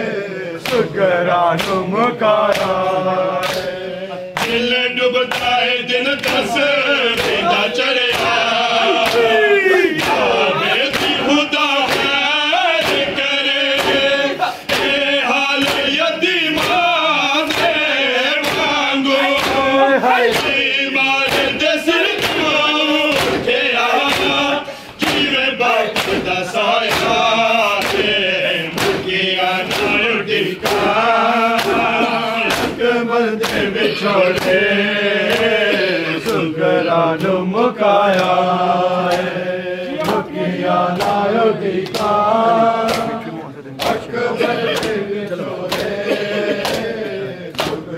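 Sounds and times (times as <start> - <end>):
men chanting together: 0.0 - 47.9
hands slapping bare chests: 0.6 - 0.9, 1.6 - 1.8, 2.4 - 3.8, 4.4 - 4.7, 5.3 - 35.6, 39.0 - 39.4, 40.0 - 40.3, 41.0 - 42.2, 42.8 - 43.2, 44.7 - 47.9.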